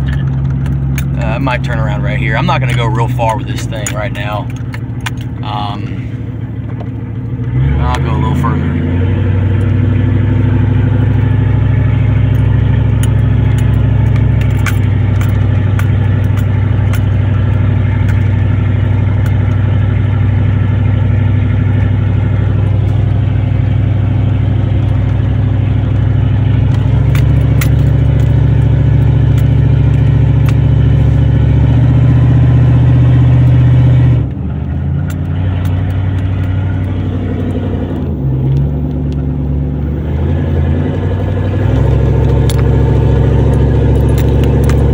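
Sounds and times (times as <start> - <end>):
rattling clicks in cab: 0.0 - 5.5, 12.3 - 19.7, 25.9 - 31.3, 43.4 - 44.9
truck engine drone from cab: 0.0 - 44.9.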